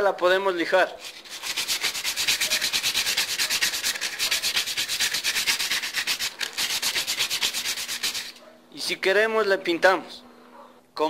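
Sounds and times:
sandpaper rubbing on metal: 0:00.9 - 0:08.4.

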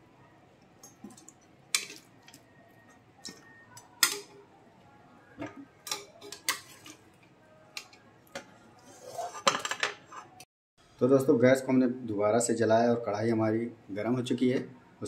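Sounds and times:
metal spatula clinking on steel: 0:04.0 - 0:04.3.

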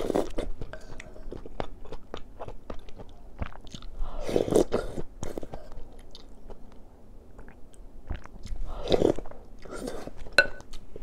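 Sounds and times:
chewing with wet clicks: 0:00.0 - 0:11.0
person slurping noodles: 0:08.7 - 0:10.1.

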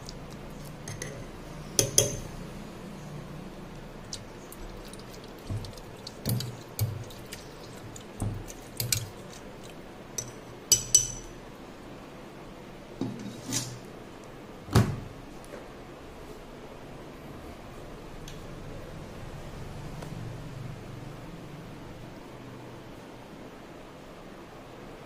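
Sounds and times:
spoon clinking on glass: 0:10.2 - 0:11.3.

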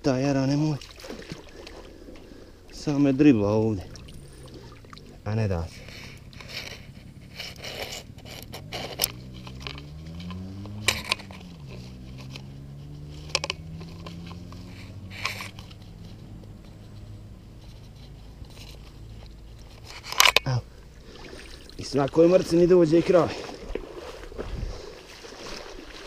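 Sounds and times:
water splashing: 0:00.0 - 0:16.0, 0:20.6 - 0:26.0
slaps and scrapes in water: 0:00.4 - 0:16.2, 0:16.8 - 0:26.0
low droning hum: 0:01.2 - 0:21.8.

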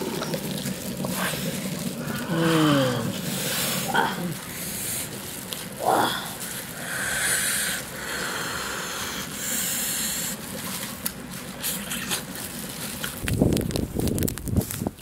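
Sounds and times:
stubble fire crackling: 0:00.0 - 0:08.1, 0:12.2 - 0:15.0
eating with wet sucking: 0:00.0 - 0:13.3
wind rumbling on microphone: 0:13.0 - 0:15.0.

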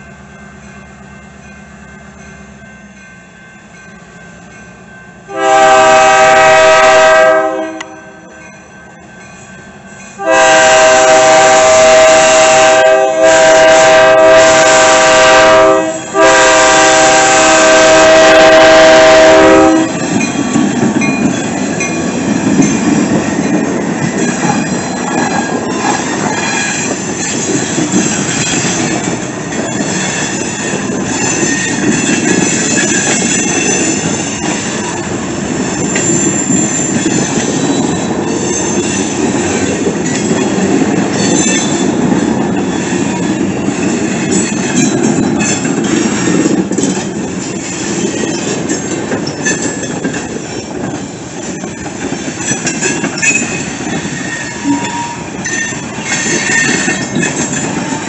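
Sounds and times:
locomotive rumbling: 0:00.0 - 0:58.0
locomotive air horn blasts: 0:05.3 - 0:08.2, 0:10.2 - 0:20.0
train wheels clacking and squealing: 0:18.7 - 0:58.0.

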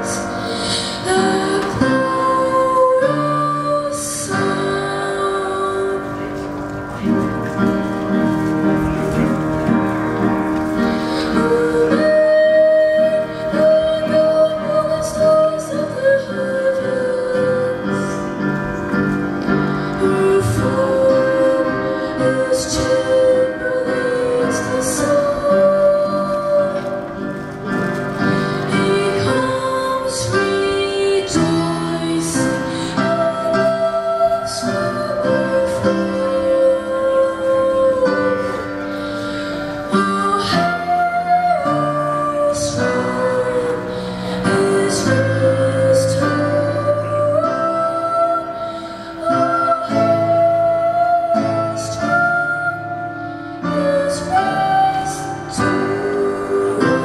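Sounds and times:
boy singing into a microphone: 0:00.0 - 0:07.3, 0:08.8 - 0:57.0
piano accompaniment: 0:00.0 - 0:57.0.

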